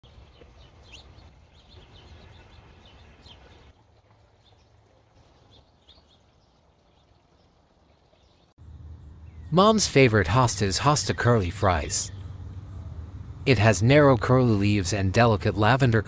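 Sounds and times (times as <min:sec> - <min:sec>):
small birds chirping: 0:00.0 - 0:14.3
low background rumble: 0:08.6 - 0:16.0.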